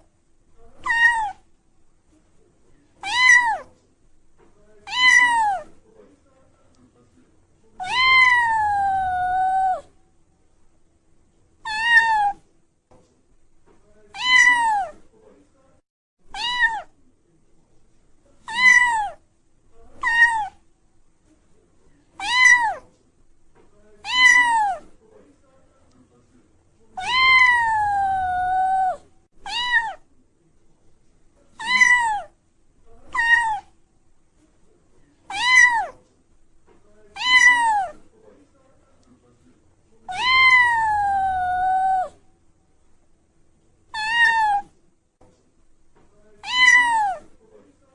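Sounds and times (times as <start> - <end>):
cat meowing: 0.8 - 1.4, 3.0 - 3.7, 4.8 - 5.7, 7.8 - 9.9, 11.6 - 12.4, 14.1 - 15.0, 16.3 - 16.9, 18.4 - 19.2, 20.0 - 20.6, 22.2 - 22.8, 24.0 - 24.8, 27.0 - 30.0, 31.6 - 32.4, 33.1 - 33.7, 35.3 - 36.0, 37.1 - 38.0, 40.1 - 42.2, 43.9 - 44.7, 46.4 - 47.3.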